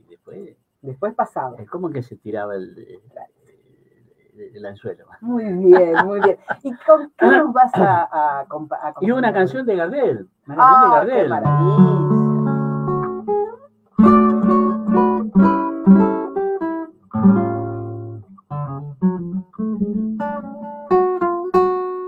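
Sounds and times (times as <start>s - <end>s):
classical guitar solo: 11.4s - 22.0s.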